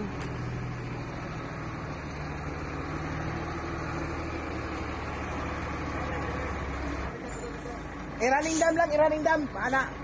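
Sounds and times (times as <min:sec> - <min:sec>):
diesel engine idling: 0:00.0 - 0:10.0.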